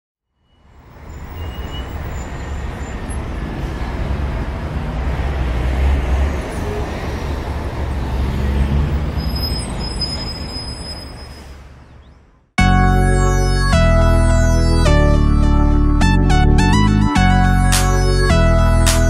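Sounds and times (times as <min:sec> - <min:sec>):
traffic noise: 0:00.3 - 0:12.6
vehicles rumbling past: 0:00.6 - 0:12.5.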